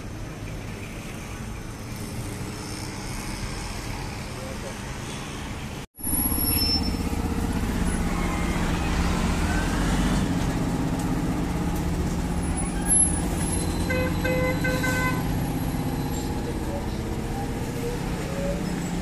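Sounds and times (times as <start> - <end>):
roadside traffic: 0.0 - 19.0
heavy vehicle engine running: 6.0 - 19.0.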